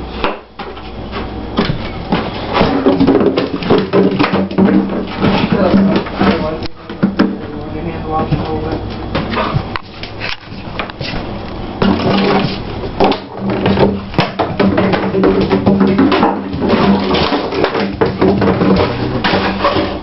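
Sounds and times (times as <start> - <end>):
plastic bottle clattering on floor: 1.6 - 7.4, 11.8 - 20.0.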